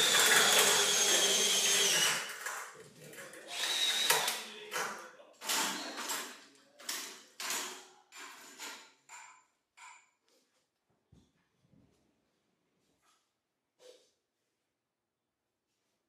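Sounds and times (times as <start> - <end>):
power drill whining: 0.0 - 2.4, 3.5 - 4.5.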